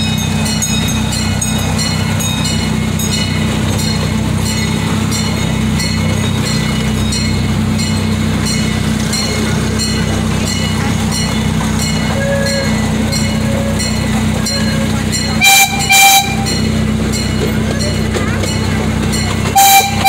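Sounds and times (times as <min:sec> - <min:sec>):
small train engine humming: 0:00.0 - 0:20.0
wheels clicking on track: 0:00.0 - 0:20.0
train horn toots: 0:12.1 - 0:16.7, 0:19.5 - 0:20.0.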